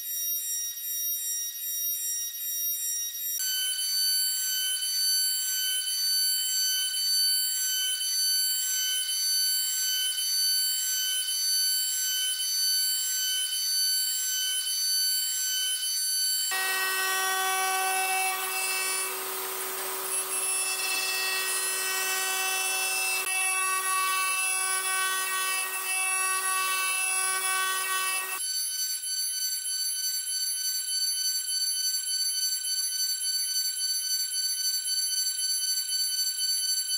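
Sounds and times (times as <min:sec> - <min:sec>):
cnc router spindle whine: 0:00.2 - 0:30.2.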